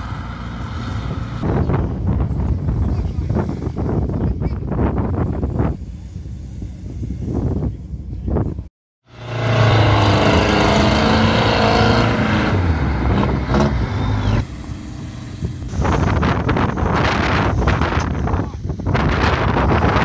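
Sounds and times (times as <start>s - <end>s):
vehicle engine running hard: 0.0s - 20.0s
wind buffeting microphone: 0.6s - 8.7s, 9.3s - 20.0s.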